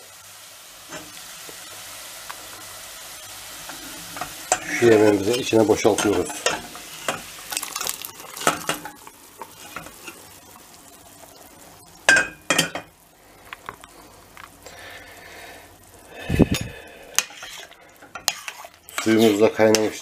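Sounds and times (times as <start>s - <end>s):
steel pots scraping and clinking: 3.6s - 10.4s, 12.0s - 12.9s, 16.5s - 20.0s
broth bubbling: 7.4s - 8.5s.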